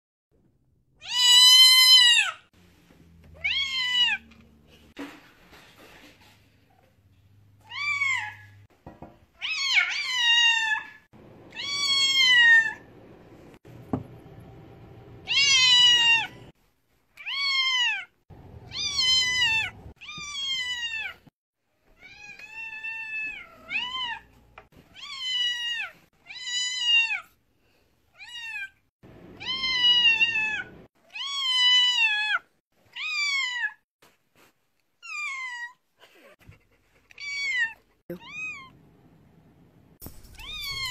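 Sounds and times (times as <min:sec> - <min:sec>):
kitten meowing loudly: 0:01.0 - 0:02.4, 0:15.3 - 0:16.4.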